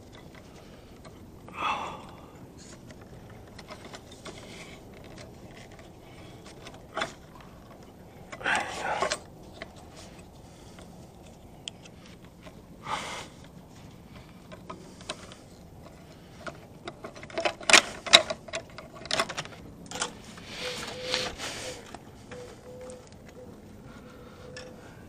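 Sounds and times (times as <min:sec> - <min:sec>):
metallic clicks and rattles: 0:02.1 - 0:12.6, 0:13.4 - 0:21.1
rustling scrapes: 0:13.2 - 0:23.1.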